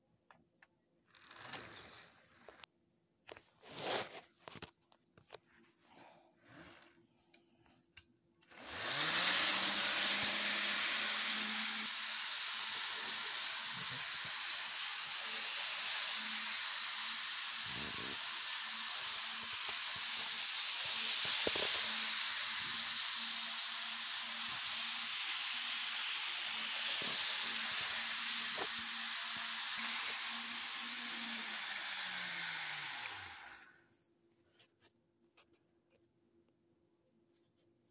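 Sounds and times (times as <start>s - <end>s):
model locomotive whirring: 8.4s - 33.8s.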